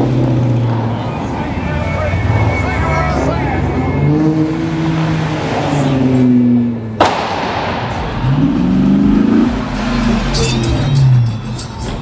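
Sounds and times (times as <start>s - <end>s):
car engine revving: 0.0s - 12.0s
cars driving past: 0.0s - 12.0s
sharp crack: 7.0s - 8.6s.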